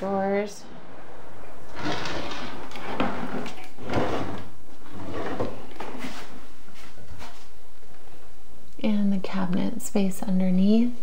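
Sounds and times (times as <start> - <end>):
drawers sliding open and shut: 0.6 - 6.4.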